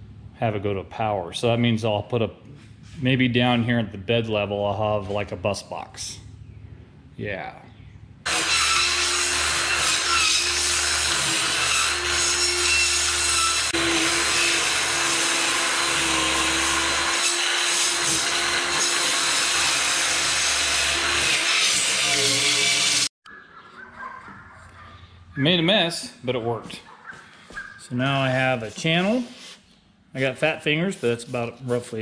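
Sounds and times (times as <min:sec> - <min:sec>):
power tool cutting foam: 0:08.3 - 0:23.1.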